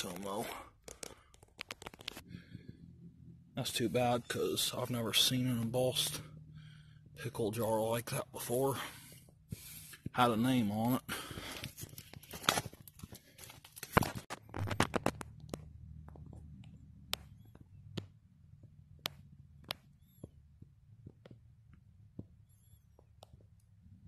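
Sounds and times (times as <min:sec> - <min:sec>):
sharp clicks and snaps: 0:00.8 - 0:02.3.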